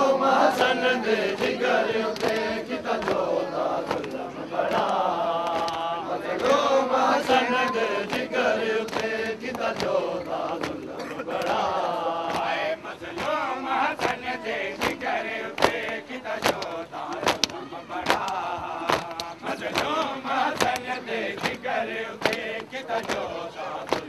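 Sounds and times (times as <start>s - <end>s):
crowd of men chanting: 0.0s - 24.0s.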